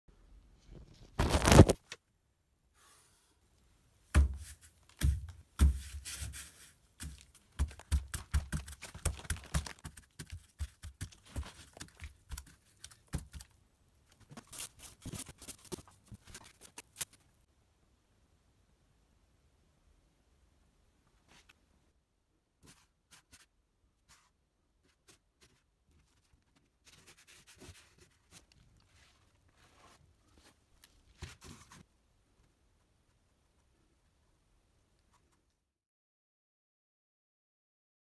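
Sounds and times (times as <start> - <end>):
paintbrush scraping paint on canvas: 22.6 - 30.6.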